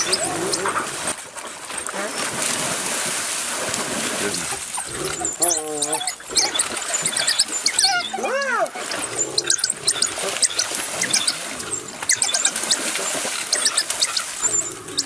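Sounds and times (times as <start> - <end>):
animal squeal: 0.0 - 0.8, 4.8 - 15.0
animals splashing through water: 0.0 - 15.0.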